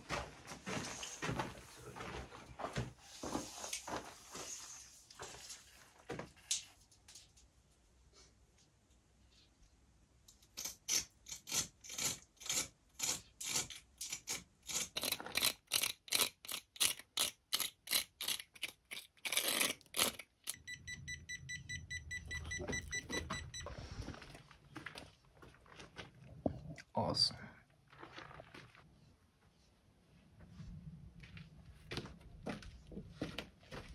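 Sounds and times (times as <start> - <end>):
high electronic beeping: 20.5 - 23.7.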